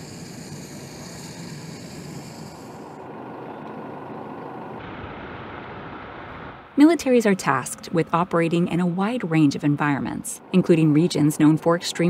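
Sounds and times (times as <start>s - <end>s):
jet engine rush: 4.8s - 8.2s.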